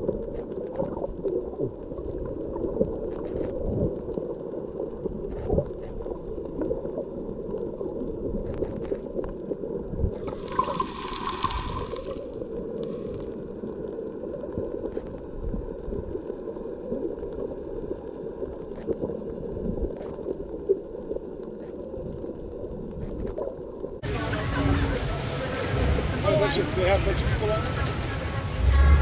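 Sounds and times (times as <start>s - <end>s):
underwater low rumble: 0.0s - 29.0s
underwater hissing rush: 10.2s - 13.2s, 24.0s - 29.0s.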